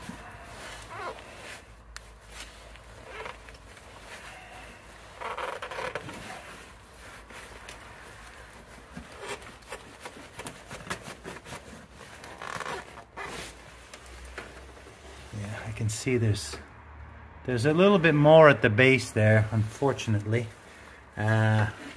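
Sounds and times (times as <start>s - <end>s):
cloth rustling: 0.0s - 15.7s
jacket sleeve brushing: 0.0s - 15.9s.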